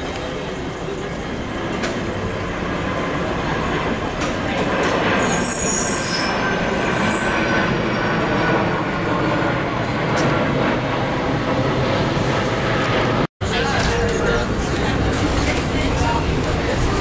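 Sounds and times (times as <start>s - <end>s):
streetcar rolling on rails: 0.0s - 9.2s, 13.4s - 17.0s
steel wheels squealing: 5.1s - 7.8s.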